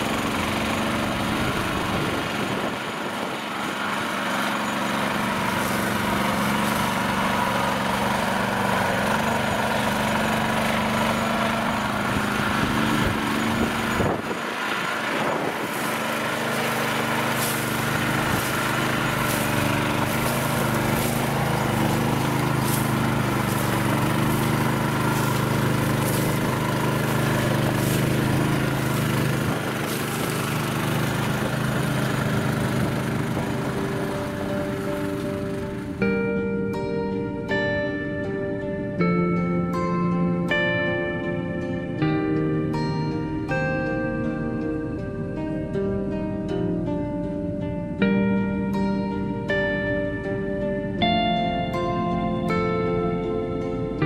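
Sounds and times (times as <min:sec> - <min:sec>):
small engine running: 0:00.0 - 0:36.6.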